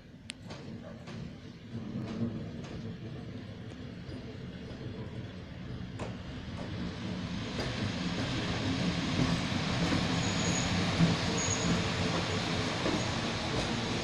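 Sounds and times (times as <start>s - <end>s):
train passing on rails: 0.0s - 14.0s.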